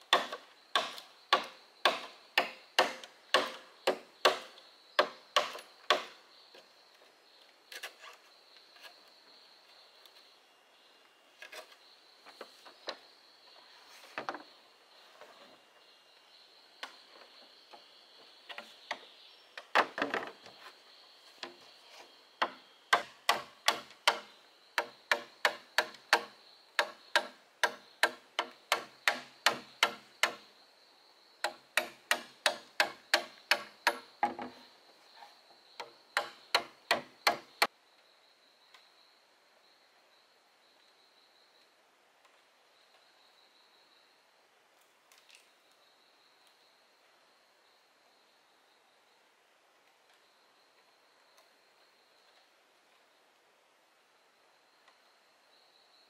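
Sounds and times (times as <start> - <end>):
machete chopping bamboo: 0.1 - 6.2, 22.4 - 30.4, 31.4 - 34.1, 36.2 - 37.6.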